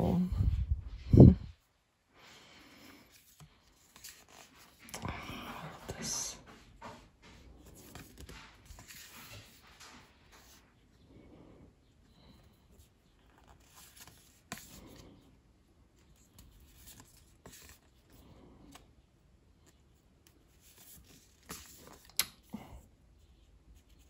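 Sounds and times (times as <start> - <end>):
cards rustling and snapping: 3.2 - 5.1, 7.6 - 10.0, 16.3 - 18.9, 19.6 - 22.5.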